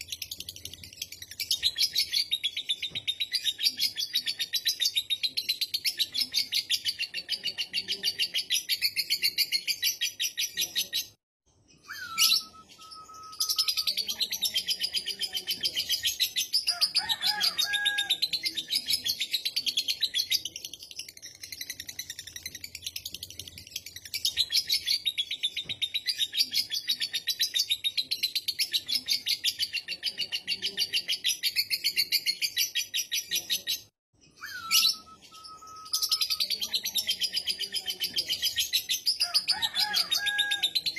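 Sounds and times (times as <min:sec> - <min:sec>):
bird gliding whistle: 0:34.4 - 0:35.9.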